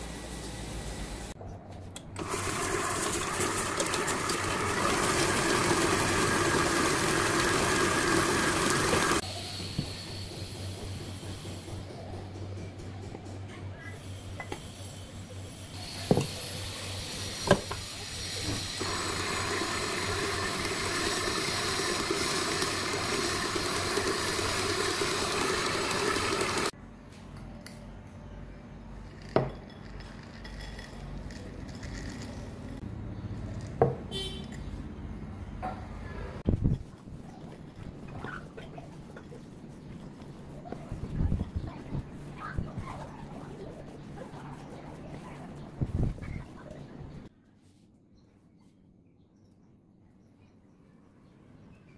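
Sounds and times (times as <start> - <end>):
electric stand mixer running: 2.2 - 9.2, 18.8 - 26.7.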